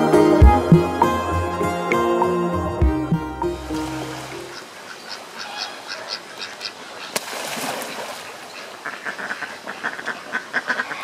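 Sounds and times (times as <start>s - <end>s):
duck quacking: 8.6s - 11.0s.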